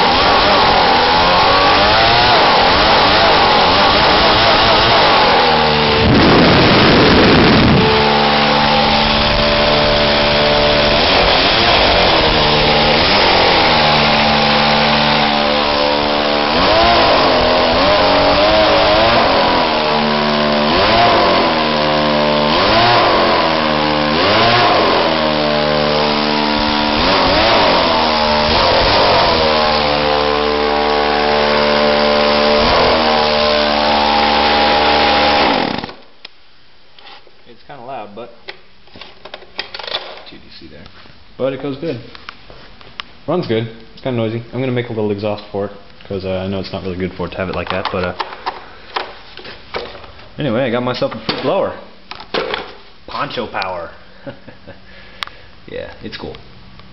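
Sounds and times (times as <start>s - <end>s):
leaf blower engine revving: 0.0s - 36.1s.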